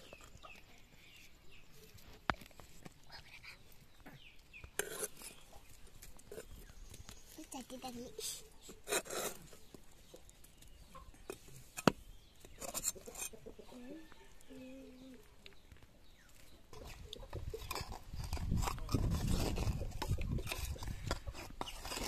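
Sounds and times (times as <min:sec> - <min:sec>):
knife scraping clay pot: 0:04.2 - 0:09.8, 0:11.1 - 0:14.4, 0:16.7 - 0:22.0.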